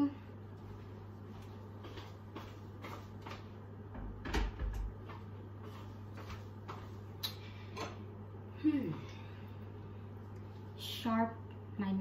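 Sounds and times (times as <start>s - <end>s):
low steady hum: 0.0s - 12.0s
footsteps on kitchen floor: 0.6s - 7.2s.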